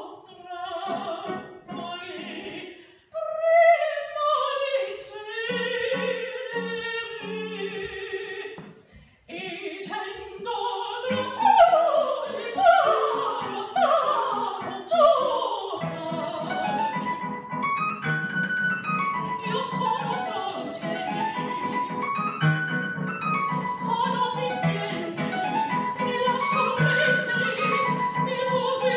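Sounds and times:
woman singing opera: 0.0s - 8.7s, 9.3s - 17.6s, 18.8s - 22.4s, 23.0s - 28.9s
piano accompaniment: 11.1s - 28.9s.

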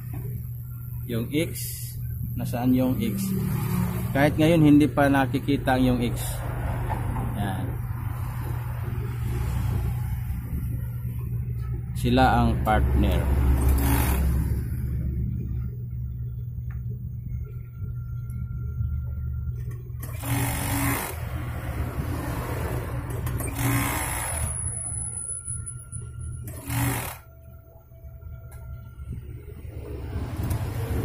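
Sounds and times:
sewing machine motor humming: 13.4s - 14.8s, 20.0s - 21.4s, 23.0s - 24.8s, 26.4s - 27.3s
overlock machine stitching: 13.5s - 14.6s, 20.0s - 21.3s, 23.0s - 24.9s, 26.4s - 27.3s.

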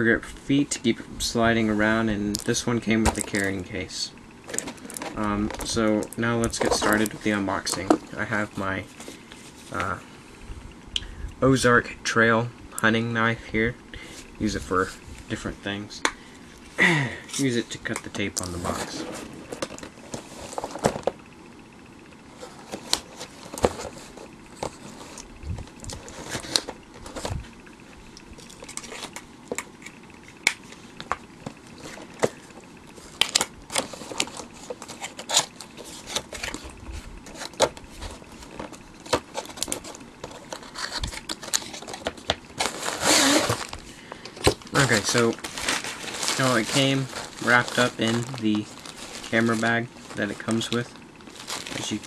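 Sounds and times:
cardboard scraping and crinkling: 4.5s - 10.0s, 17.4s - 21.2s, 22.3s - 27.6s, 31.5s - 52.0s
packing tape tearing: 33.1s - 43.8s, 44.4s - 52.0s.

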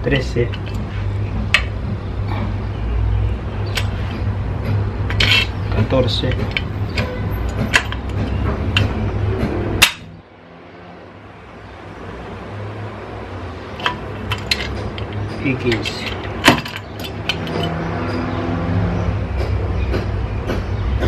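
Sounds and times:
hand tools clinking on metal: 5.1s - 9.0s, 13.8s - 18.3s.

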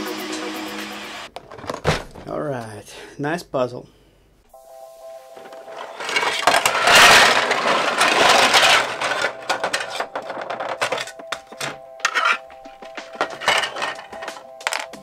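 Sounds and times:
plastic parts clattering onto wood: 1.4s - 2.3s, 5.4s - 15.0s
plastic parts clicking: 5.4s - 12.4s, 13.1s - 15.0s.

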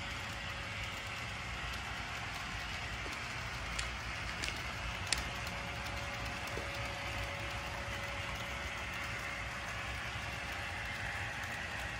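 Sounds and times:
faint motor whine: 0.0s - 11.9s
model train wheels rattling: 0.0s - 11.9s
click: 1.7s - 5.3s.

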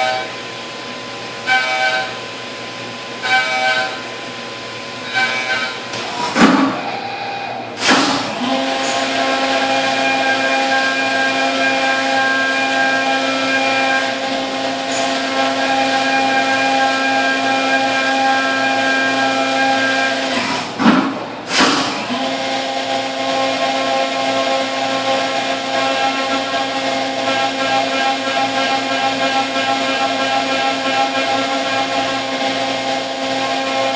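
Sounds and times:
milling machine cutting whine: 0.0s - 33.9s
loud noisy bursts: 21.5s - 33.9s.

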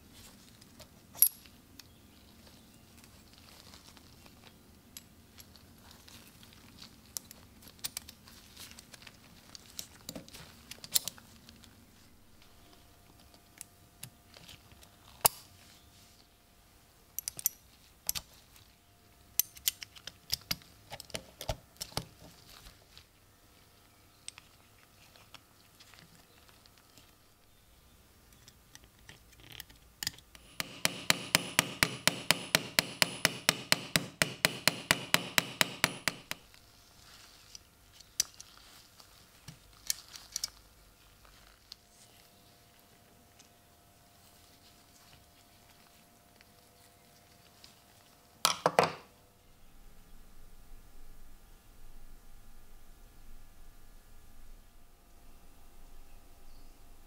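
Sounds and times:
metal knife parts clicking: 17.2s - 18.2s
fast sharp taps: 30.4s - 36.4s.

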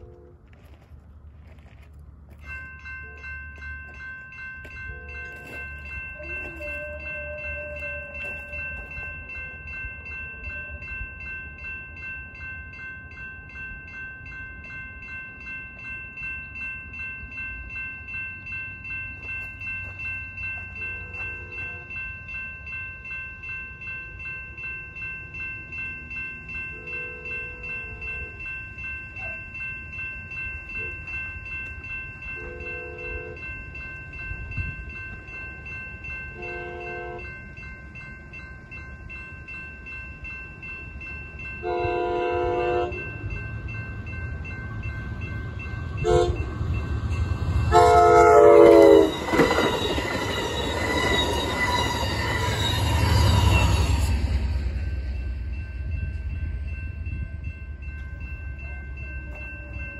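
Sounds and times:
faint train horn blasts: 0.0s - 0.4s, 6.2s - 9.0s, 36.4s - 37.3s, 41.6s - 43.1s, 46.0s - 46.5s, 47.7s - 49.1s
crossing warning bell ringing: 0.0s - 59.9s.

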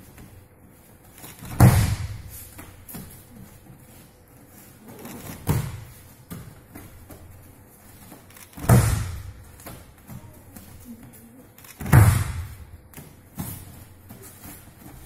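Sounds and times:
soft knocks of feet on mats: 0.0s - 15.0s
body slamming onto mat: 1.4s - 2.3s, 8.6s - 9.4s, 11.8s - 12.6s.

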